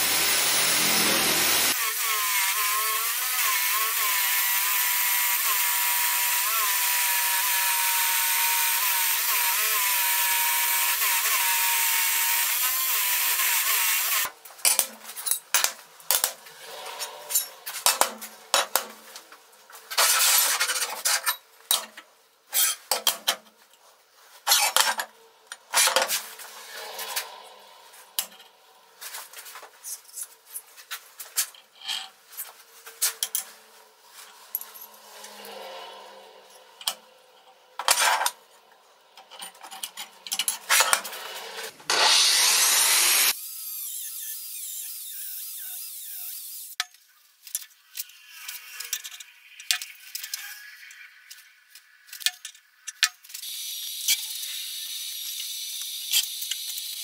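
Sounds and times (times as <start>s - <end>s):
metal scraping against metal: 15.0s - 21.8s, 24.3s - 38.6s.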